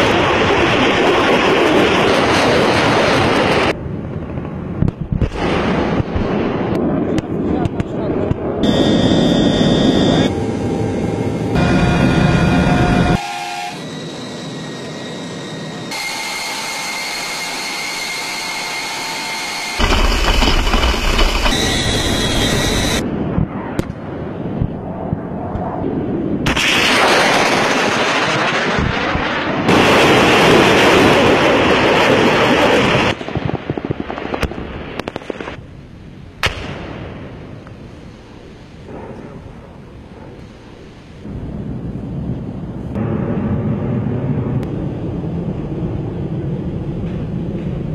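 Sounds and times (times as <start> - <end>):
gunfire or explosion bangs: 4.3 - 8.8, 19.8 - 21.6, 26.4 - 31.7
aircraft engines droning: 8.1 - 23.2
loud rushes of noise: 8.6 - 23.1.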